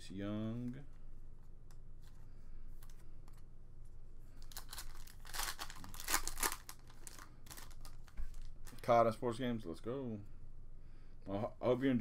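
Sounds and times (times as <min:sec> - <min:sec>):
foil wrapper crinkling: 0:04.4 - 0:08.9.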